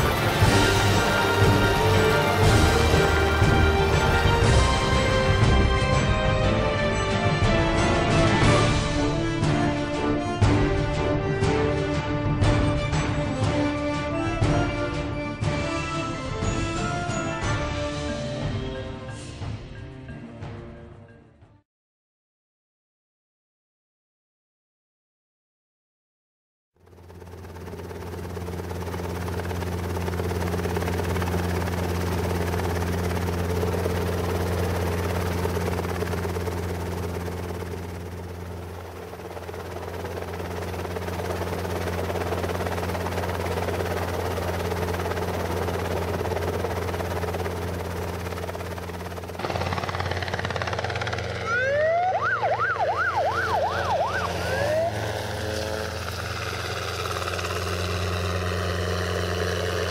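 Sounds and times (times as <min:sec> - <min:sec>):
helicopter drone: 0:00.0 - 0:20.2, 0:26.8 - 0:59.9
siren-like warble: 0:51.4 - 0:56.9.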